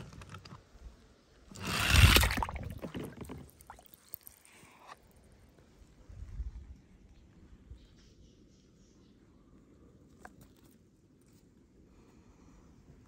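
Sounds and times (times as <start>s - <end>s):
toy car splashing into water: 1.5s - 4.4s.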